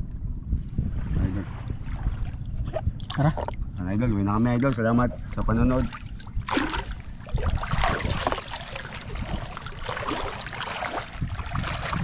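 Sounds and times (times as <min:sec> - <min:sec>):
wind rumbling on microphone: 0:00.0 - 0:12.0
water washing and splashing: 0:05.8 - 0:12.0.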